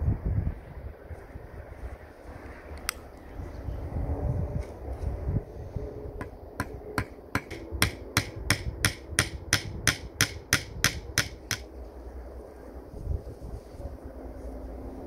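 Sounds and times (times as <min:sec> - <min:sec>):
hammer tapping: 0:06.2 - 0:11.7.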